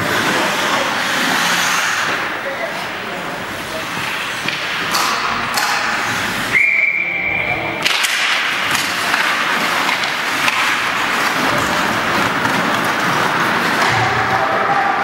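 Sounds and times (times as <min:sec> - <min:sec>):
arena noise: 0:00.0 - 0:15.0
referee's whistle blast: 0:06.5 - 0:07.4.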